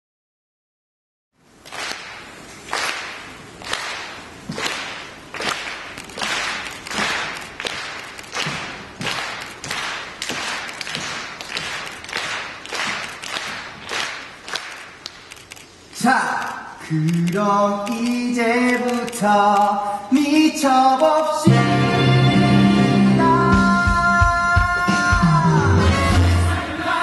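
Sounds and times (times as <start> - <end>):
audience clapping in rhythm: 1.5 - 16.6.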